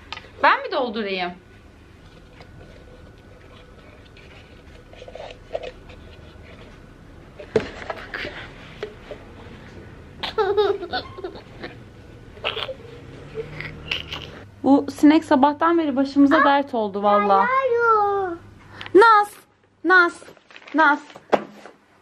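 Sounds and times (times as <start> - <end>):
toddler laughing: 10.2 - 11.8, 12.4 - 14.5
woman laughing: 10.2 - 11.8, 12.4 - 14.4.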